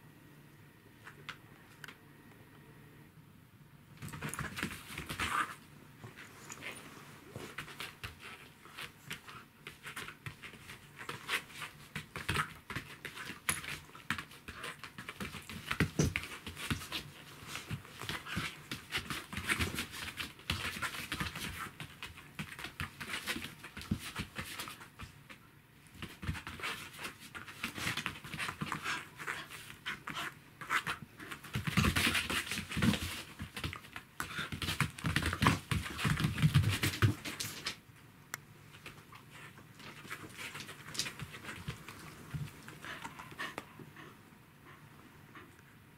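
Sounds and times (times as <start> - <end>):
scuffling paws and knocks: 38.7 - 43.7
dog panting: 41.4 - 45.6.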